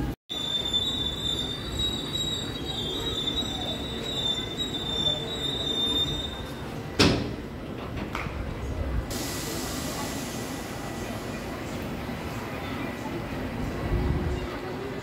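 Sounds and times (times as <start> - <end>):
train wheels squealing on rails: 0.3 - 6.9.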